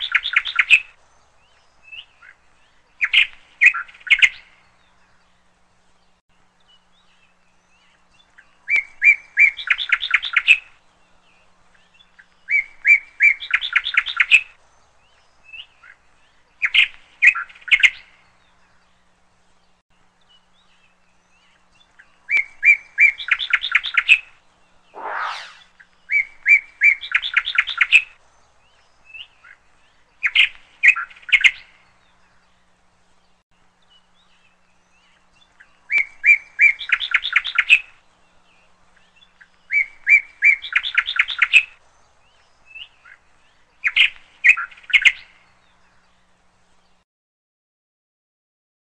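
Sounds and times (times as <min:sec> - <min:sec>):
bird chirping and trilling: 0:25.0 - 0:25.8
brief sweeping sound: 0:25.0 - 0:25.8.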